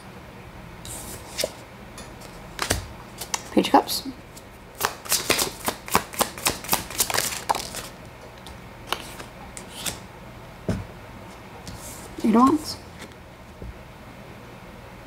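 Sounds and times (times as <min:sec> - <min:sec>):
cards being shuffled: 0:00.9 - 0:01.6, 0:02.2 - 0:03.6, 0:04.3 - 0:10.0.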